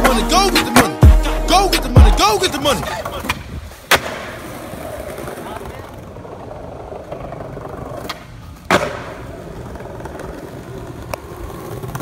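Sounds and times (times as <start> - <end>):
skateboard rolling on concrete: 1.8 - 12.0
skateboard landing clack: 3.0 - 4.6, 7.1 - 9.4.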